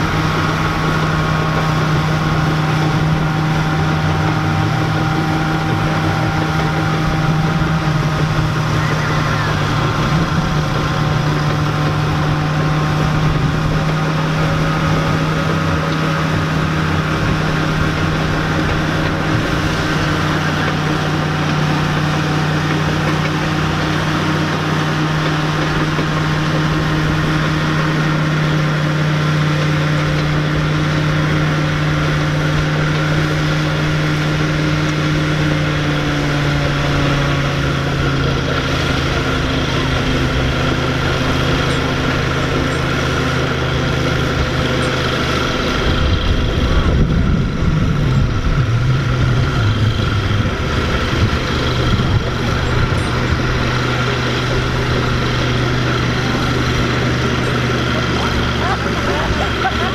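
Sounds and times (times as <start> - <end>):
tractor engine running under load: 0.0 - 59.9.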